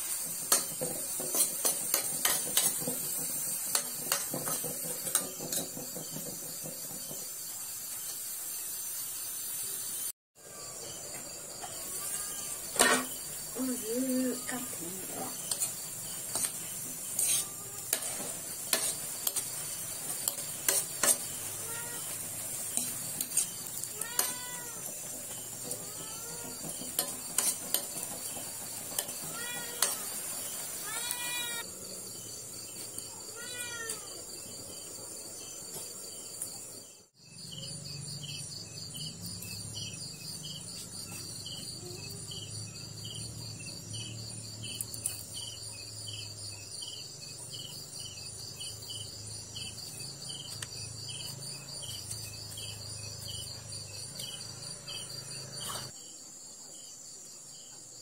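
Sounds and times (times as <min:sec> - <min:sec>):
metal spoon scraping a wok: 0:00.0 - 0:07.0, 0:11.9 - 0:13.4, 0:14.4 - 0:31.4
food sizzling: 0:00.0 - 0:37.1, 0:37.7 - 0:55.9
crickets chirping: 0:00.0 - 0:58.0.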